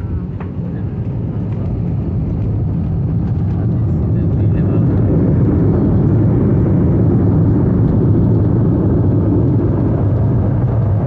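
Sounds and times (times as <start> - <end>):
airframe rumble: 0.0 - 11.0
jet engine noise in cabin: 0.0 - 11.0.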